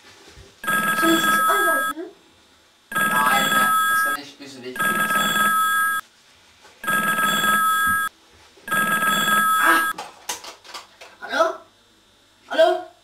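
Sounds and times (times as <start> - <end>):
telephone ringing: 0.6 - 1.9, 2.9 - 4.2, 4.8 - 6.0, 6.8 - 8.1, 8.7 - 9.9
person speaking: 0.7 - 1.9, 2.9 - 4.2.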